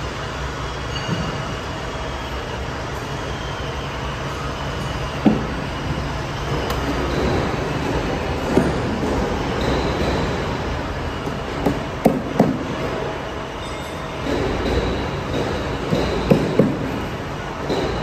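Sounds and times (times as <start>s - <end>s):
factory background noise: 0.0s - 18.0s
sharp knocks: 11.2s - 12.8s, 14.2s - 17.0s.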